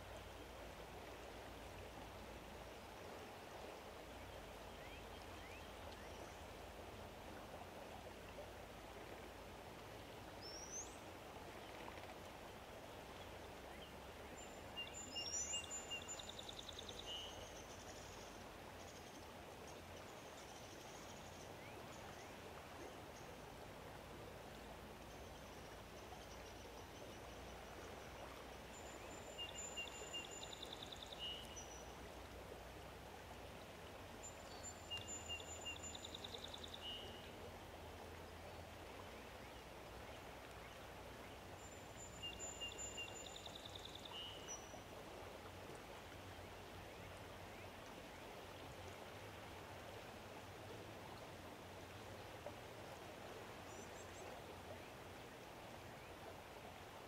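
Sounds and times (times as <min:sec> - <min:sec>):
faint outdoor hiss: 0:00.0 - 0:57.0
songbird singing: 0:04.2 - 0:06.5, 0:10.4 - 0:11.0, 0:13.1 - 0:22.4, 0:25.0 - 0:32.1, 0:34.1 - 0:37.5, 0:38.2 - 0:44.9.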